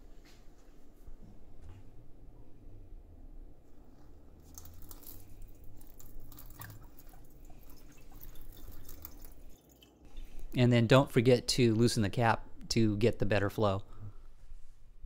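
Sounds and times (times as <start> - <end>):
water splashing over hands: 4.4 - 9.9
water stream into steel sink: 4.4 - 10.4.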